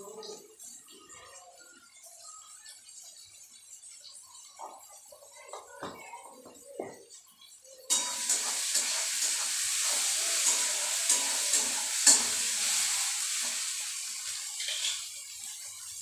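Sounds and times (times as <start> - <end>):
vegetables sizzling in oil: 7.0 - 16.0
spatula scraping a pan: 7.9 - 15.2.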